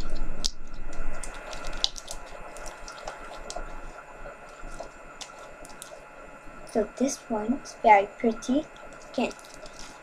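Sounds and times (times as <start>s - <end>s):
slime squelching and clicking: 0.0s - 3.7s.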